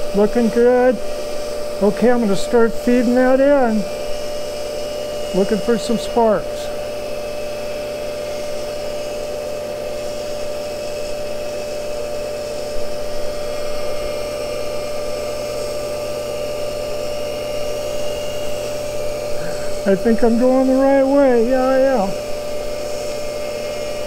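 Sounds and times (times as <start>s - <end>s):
grinder motor whining: 0.0s - 24.0s
even hiss: 19.2s - 22.3s.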